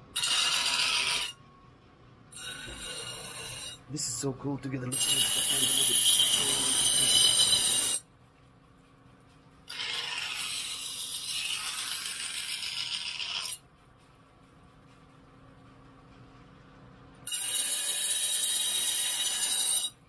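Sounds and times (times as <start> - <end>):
knife grinding on sharpening stone: 0.2 - 1.4, 2.3 - 3.8, 4.9 - 8.0, 9.7 - 13.6, 17.3 - 20.0.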